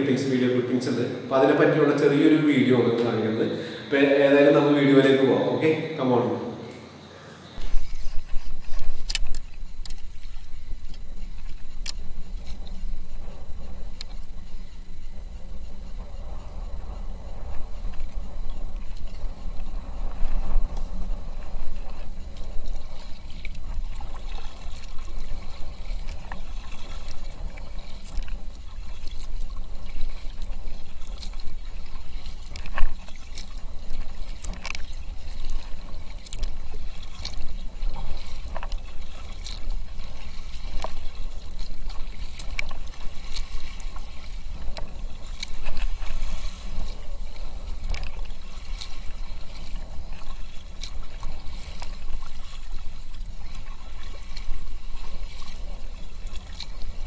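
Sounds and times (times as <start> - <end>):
steady low rumble: 0.0 - 6.3, 6.9 - 57.0
paddle splashing into water: 21.4 - 57.0.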